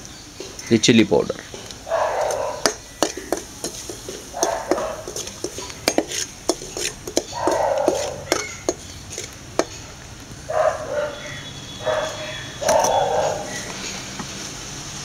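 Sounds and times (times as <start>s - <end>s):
faint sizzle of frying: 0.0s - 15.0s
metal scraping strokes: 1.9s - 9.7s.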